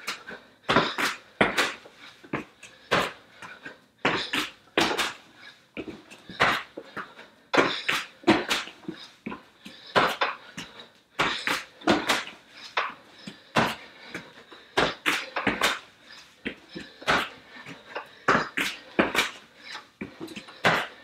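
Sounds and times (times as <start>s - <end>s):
hands and feet slapping mat: 0.0s - 21.0s
hard breathing: 0.0s - 21.0s
shoes landing thuds: 0.7s - 3.2s, 4.0s - 5.2s, 7.6s - 10.4s, 11.2s - 13.0s, 13.6s - 13.8s, 14.8s - 15.8s, 16.4s - 19.4s, 20.0s - 21.0s.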